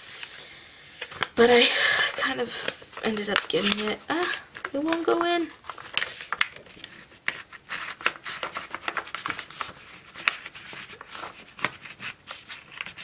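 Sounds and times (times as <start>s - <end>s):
laminating pocket crackling: 3.0s - 13.0s.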